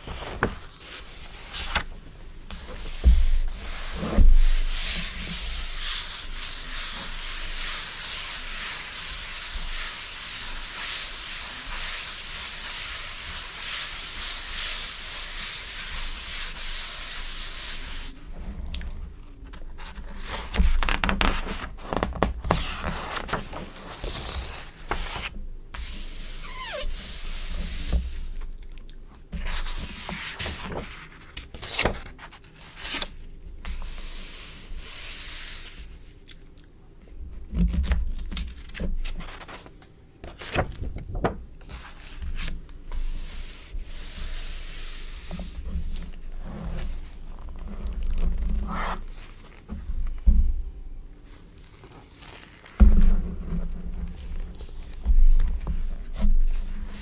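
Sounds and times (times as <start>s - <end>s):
hands rubbing magazine pages: 2.5s - 18.2s, 51.3s - 57.0s
glossy pages turning: 51.6s - 53.0s.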